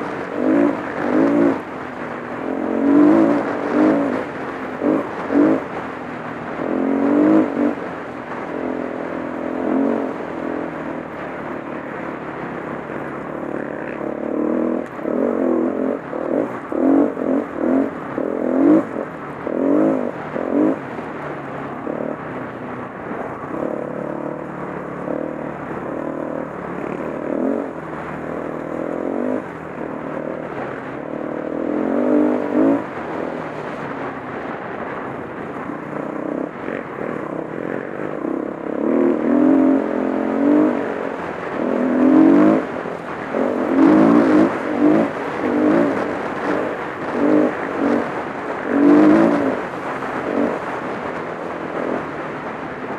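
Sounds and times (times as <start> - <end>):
dirt bike engine revving: 0.0 - 52.9.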